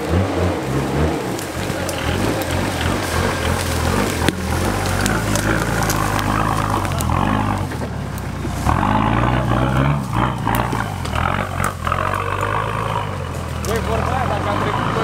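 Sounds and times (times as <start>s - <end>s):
off-road vehicle engine revving: 0.0s - 15.0s.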